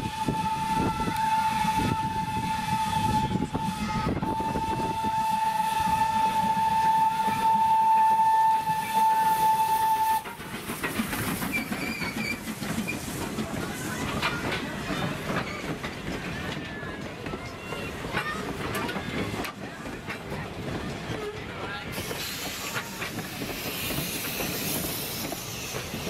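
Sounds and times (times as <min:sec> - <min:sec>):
steam locomotive whistle: 0:00.0 - 0:10.5
train coaches rumbling on rails: 0:00.0 - 0:26.0.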